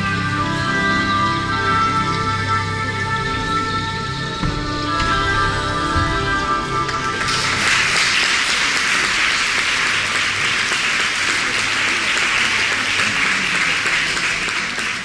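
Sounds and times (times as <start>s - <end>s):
music: 0.0s - 15.0s
audience applauding: 6.9s - 15.0s.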